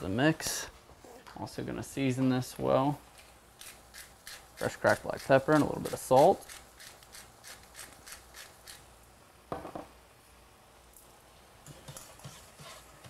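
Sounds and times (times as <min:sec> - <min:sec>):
pepper mill grinding: 0:03.1 - 0:08.8.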